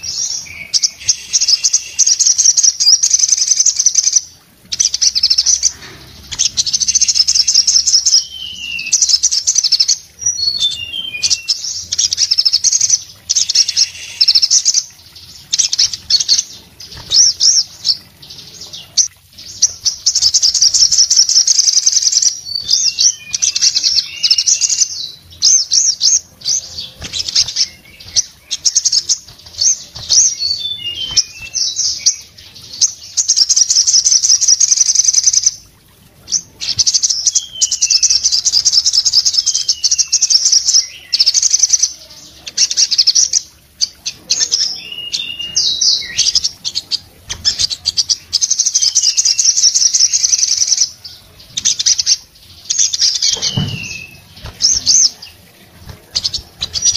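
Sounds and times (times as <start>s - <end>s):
sunbird twittering song: 0.0s - 56.9s.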